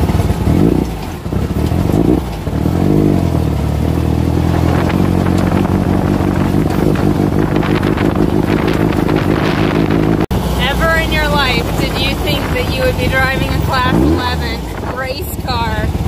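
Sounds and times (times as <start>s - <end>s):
car engine from inside while driving: 0.0s - 16.0s.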